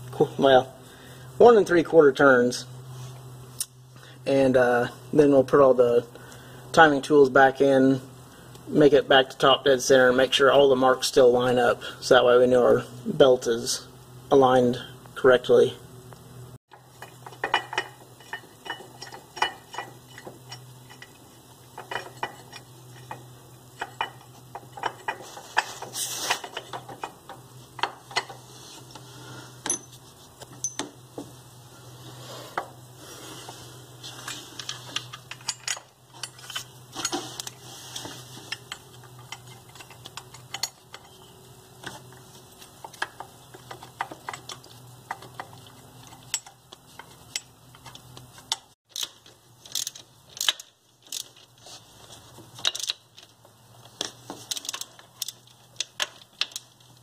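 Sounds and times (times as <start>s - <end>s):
steady low hum: 0.0s - 57.0s
metallic clinks of tools and bolts: 16.7s - 21.2s, 29.6s - 31.0s, 34.3s - 37.6s, 38.5s - 41.4s, 42.8s - 51.5s, 52.6s - 53.4s.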